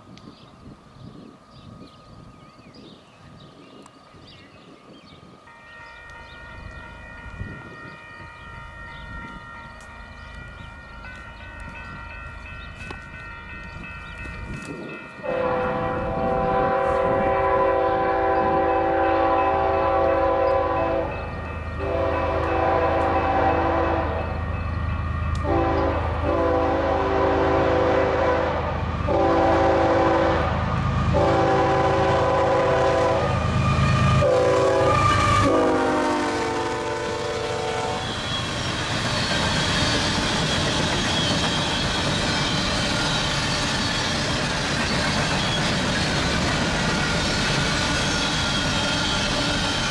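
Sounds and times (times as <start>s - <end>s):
rumble of approaching train: 0.0s - 49.9s
diesel locomotive horn blasts: 15.2s - 24.4s, 25.0s - 38.4s.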